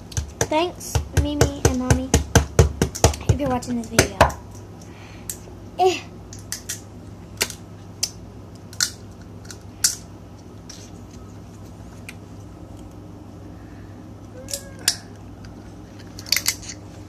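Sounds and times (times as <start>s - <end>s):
crab shell cracking: 7.4s - 10.0s.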